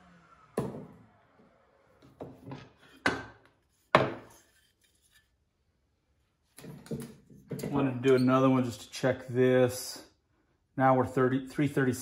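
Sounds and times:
wood-on-wood knocks: 2.2s - 4.3s.

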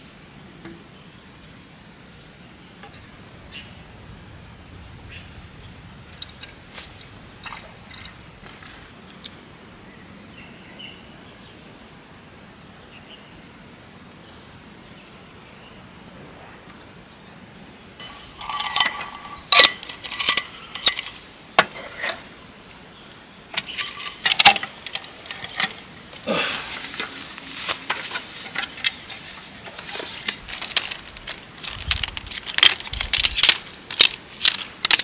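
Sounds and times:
metal cookware clinking: 18.0s - 22.2s.

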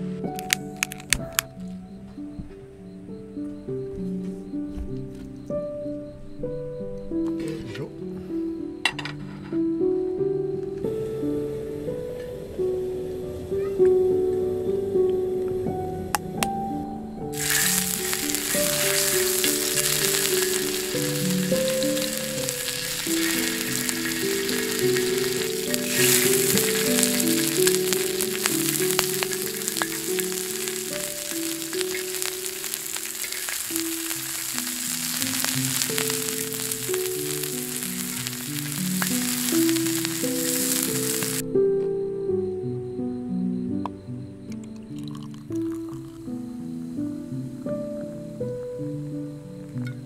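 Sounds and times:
soft background music: 0.0s - 50.0s
meat and vegetables sizzling: 17.2s - 41.4s.

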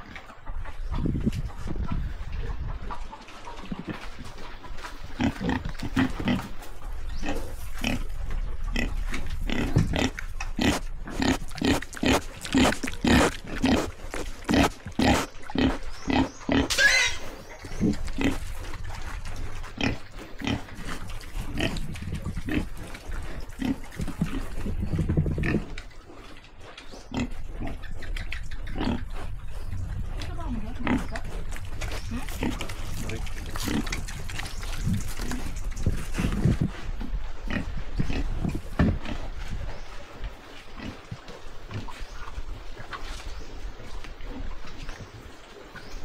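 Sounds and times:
pigs grunting: 1.8s - 42.2s
pig squealing: 10.7s - 18.4s.

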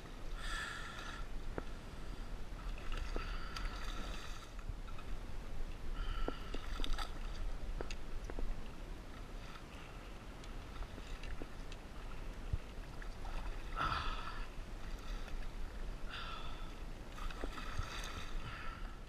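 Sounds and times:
water slaps and clicks: 6.2s - 8.5s.

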